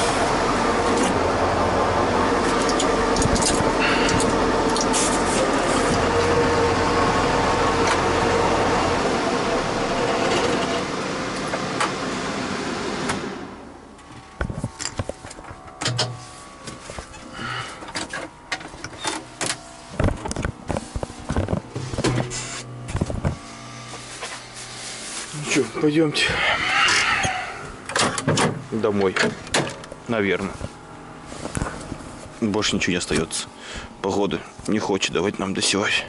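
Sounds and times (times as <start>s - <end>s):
tractor engine running: 0.0s - 26.5s.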